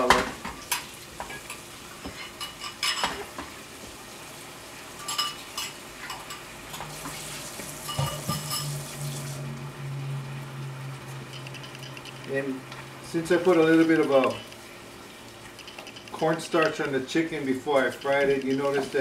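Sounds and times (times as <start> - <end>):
food sizzling in a frying pan: 0.0 - 11.3
cookware clinking and scraping: 0.1 - 3.3, 5.0 - 6.9, 7.8 - 8.8, 13.3 - 14.6, 15.5 - 17.0
low hum: 8.5 - 14.6.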